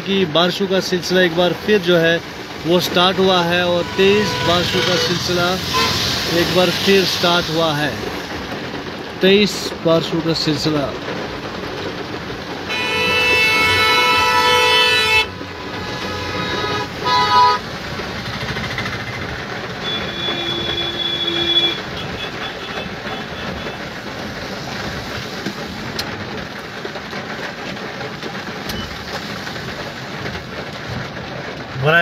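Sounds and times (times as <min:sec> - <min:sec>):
heavy rain: 0:00.0 - 0:32.0
tyres on wet road: 0:00.0 - 0:32.0
car horns honking: 0:03.5 - 0:06.6, 0:12.7 - 0:17.7, 0:19.8 - 0:23.9.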